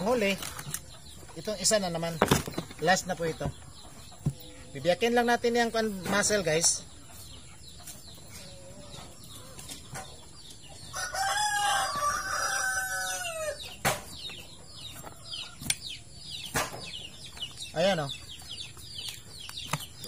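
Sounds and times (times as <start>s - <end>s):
rooster crowing: 10.9s - 13.6s.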